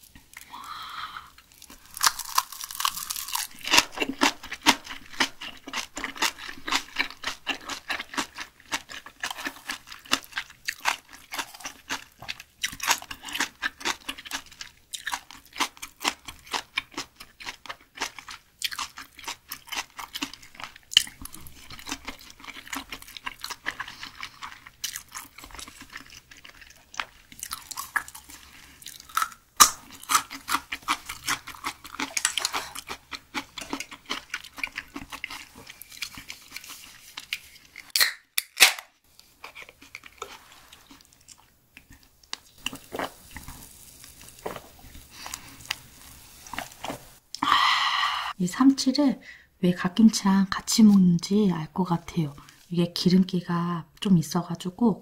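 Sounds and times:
close chewing: 0:01.4 - 0:38.0.

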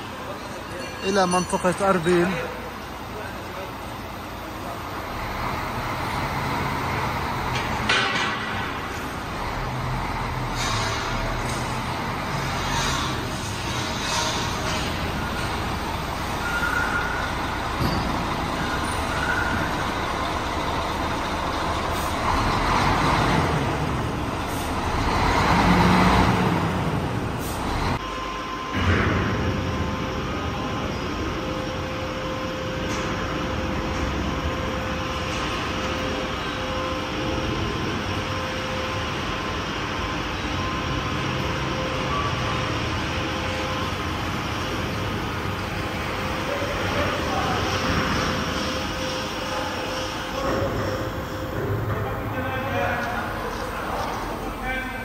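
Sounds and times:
heavy machinery noise: 0:00.0 - 0:55.0.

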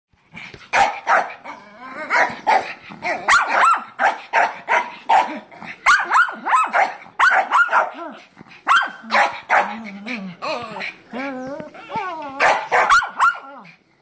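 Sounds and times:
small dogs barking: 0:00.7 - 0:09.9, 0:12.4 - 0:13.7.

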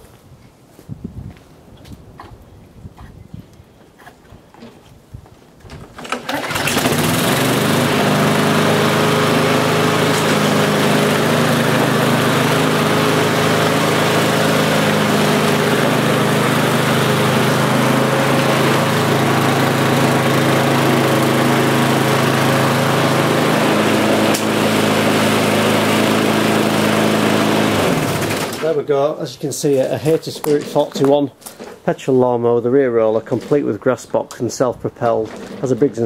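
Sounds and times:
lawnmower engine running: 0:05.9 - 0:28.9, 0:29.5 - 0:31.9, 0:33.1 - 0:33.9, 0:35.0 - 0:36.0.

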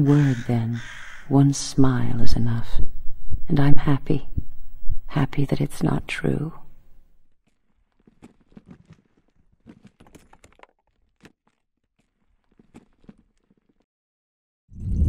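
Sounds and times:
faint taps and crunches: 0:07.3 - 0:13.9.

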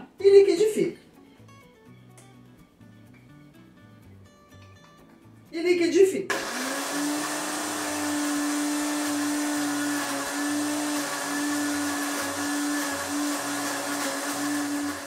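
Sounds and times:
blender running: 0:06.3 - 0:15.0.

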